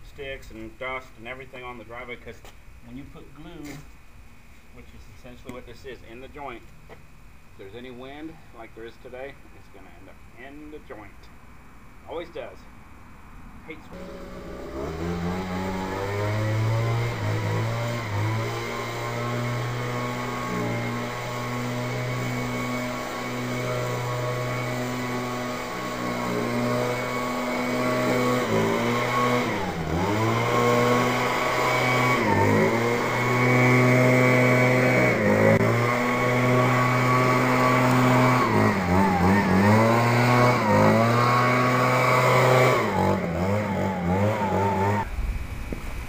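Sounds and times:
leaf blower running: 13.9s - 45.1s.

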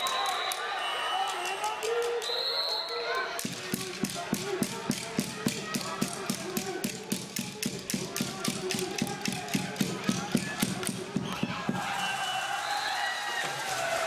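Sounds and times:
fast rhythmic drum beating: 3.4s - 12.0s.

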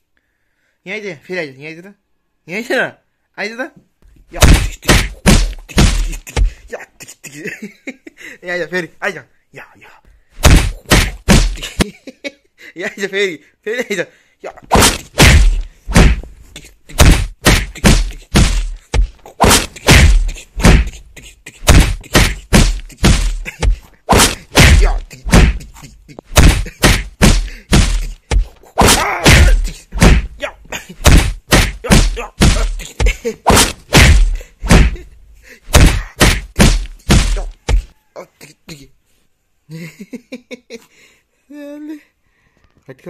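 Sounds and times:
hand striking bedding: 4.3s - 6.7s, 10.4s - 11.8s, 14.6s - 35.1s, 35.7s - 37.9s.

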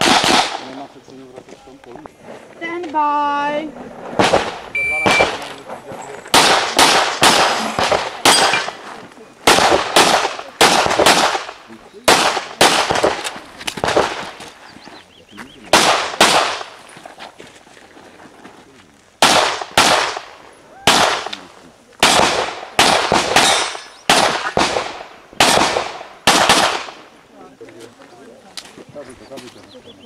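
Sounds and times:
pistol shots echoing: 0.0s - 0.9s, 4.2s - 5.5s, 6.3s - 14.4s, 15.7s - 16.8s, 19.2s - 27.1s.

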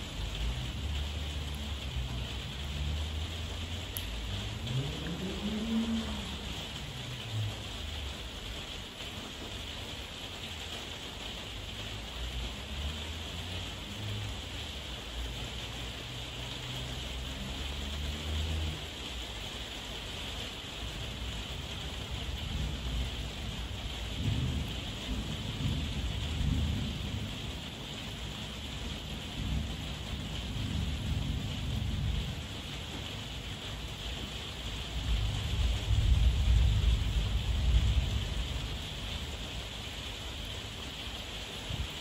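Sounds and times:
heavy rain falling: 0.0s - 42.0s
low rolling thunder: 4.2s - 8.5s, 22.0s - 34.0s, 34.7s - 39.6s.

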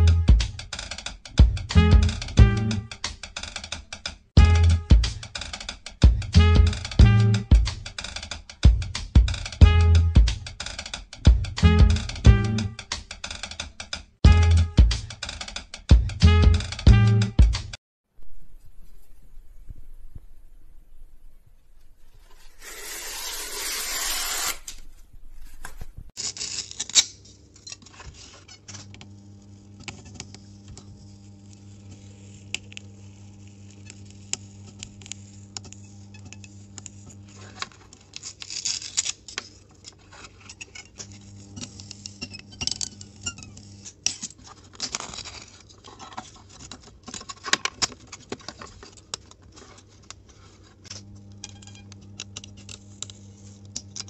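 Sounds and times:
low hum: 18.2s - 26.1s
knife slicing through paper tube: 22.1s - 25.8s
foam pieces scratching and clicking: 22.3s - 54.0s.

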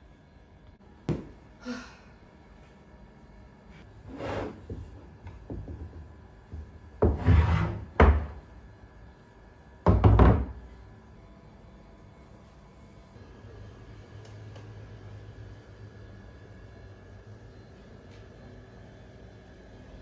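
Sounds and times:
person sighing: 1.6s - 2.2s
wood scraping and knocking on wood: 7.0s - 8.4s.

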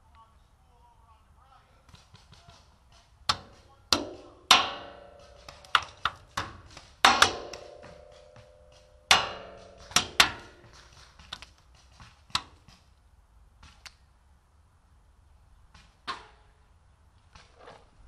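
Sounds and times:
paintball markers firing: 1.8s - 13.0s
paintballs smacking cover: 1.9s - 12.9s.

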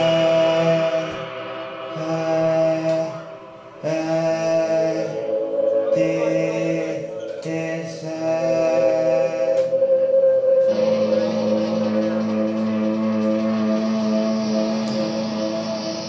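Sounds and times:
sharp cymbal strokes: 0.0s - 16.0s
rock band droning chord: 10.7s - 16.0s.

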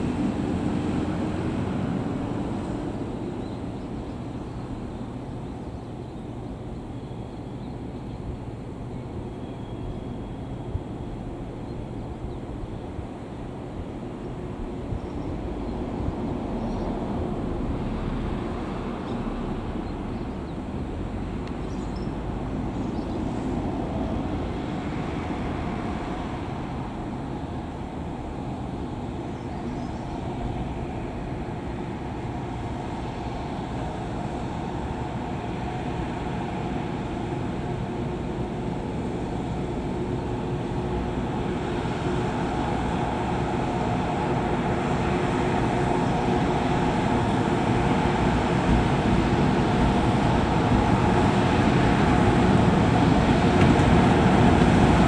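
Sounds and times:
wheels rumbling: 0.0s - 5.9s, 8.4s - 55.0s
electric locomotive humming: 0.0s - 55.0s.

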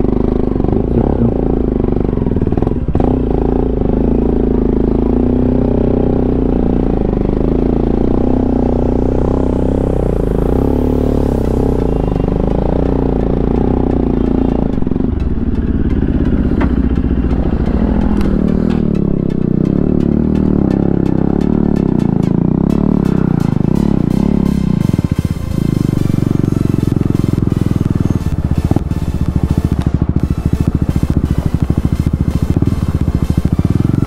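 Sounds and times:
motorcycle engine under load: 0.0s - 34.0s
rattling: 12.1s - 33.9s.

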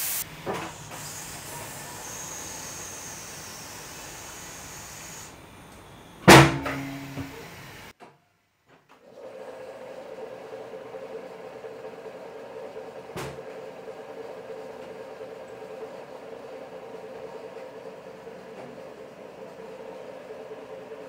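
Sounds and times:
air hiss: 0.0s - 7.9s
metallic clang: 6.3s - 7.4s.

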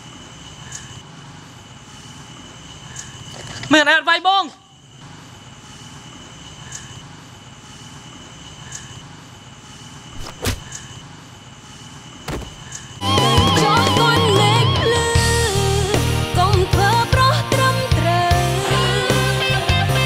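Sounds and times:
sharp knocks: 12.3s - 12.7s
music with singing voice: 13.0s - 20.0s.

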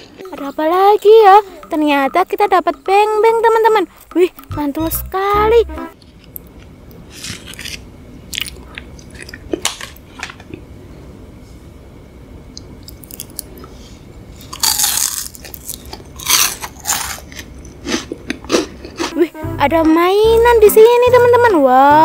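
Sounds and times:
crunching bites and chewing: 6.0s - 10.0s, 12.6s - 13.7s, 14.4s - 19.1s.

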